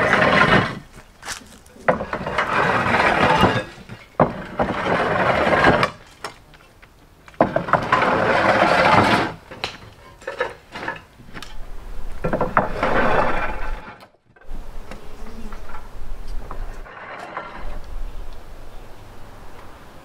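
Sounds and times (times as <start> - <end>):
roof tiles sliding down wooden chute: 0.0 - 20.0.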